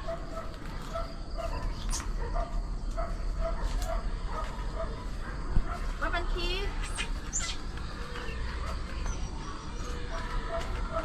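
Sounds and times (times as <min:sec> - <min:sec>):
animal squeaking calls: 0:06.8 - 0:11.0.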